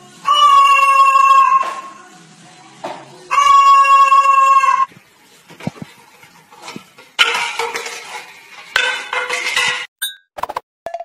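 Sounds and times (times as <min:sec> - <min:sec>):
cockatoo screeching: 0:00.2 - 0:02.0, 0:03.3 - 0:04.9.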